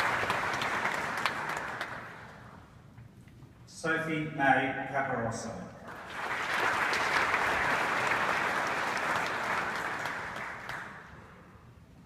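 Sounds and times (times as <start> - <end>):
audience applauding: 0.0 - 2.4, 5.9 - 11.2.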